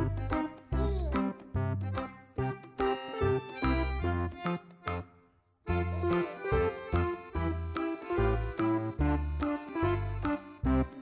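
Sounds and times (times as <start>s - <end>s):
background music with bass line: 0.0s - 5.1s, 5.7s - 11.0s.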